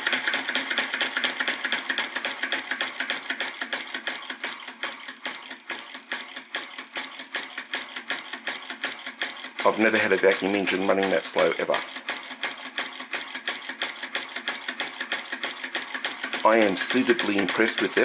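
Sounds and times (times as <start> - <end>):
model engine clicking: 0.0 - 18.0.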